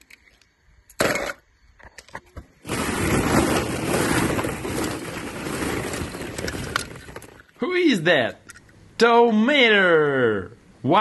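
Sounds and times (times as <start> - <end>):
plastic balls clattering: 2.6 - 7.6.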